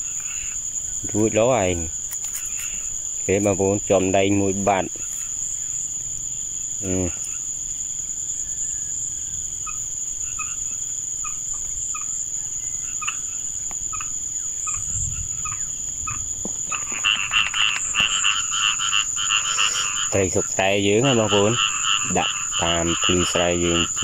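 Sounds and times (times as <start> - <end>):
fast-pulsing frog chorus: 0.0 - 2.0, 9.6 - 24.0
frogs calling: 0.0 - 24.0
high insect drone: 0.0 - 24.0.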